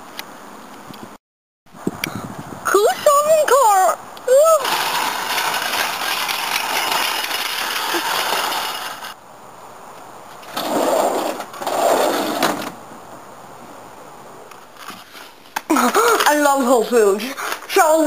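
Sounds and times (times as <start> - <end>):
shopping cart rattling on asphalt: 4.3 - 9.2.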